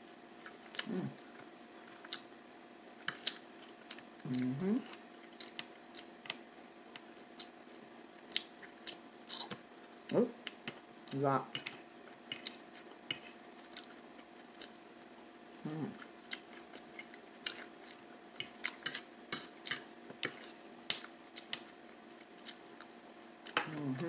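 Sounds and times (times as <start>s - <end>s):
person humming: 0.8s - 1.2s, 4.3s - 4.9s, 15.6s - 16.0s, 23.6s - 24.0s
fork scraping a plate: 18.4s - 20.6s.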